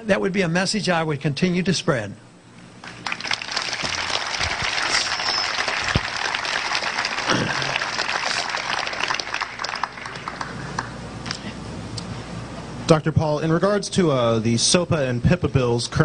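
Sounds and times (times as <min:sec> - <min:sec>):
audience applauding: 0:02.8 - 0:11.0
short whistle: 0:04.8 - 0:05.7.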